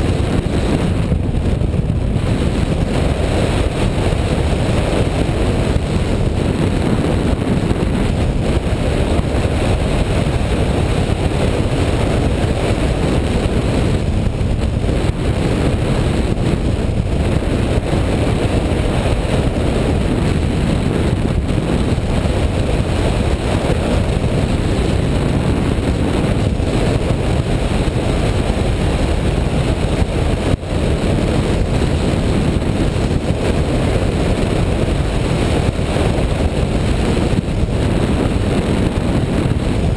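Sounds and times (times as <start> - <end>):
wind noise on microphone: 0.0 - 39.9.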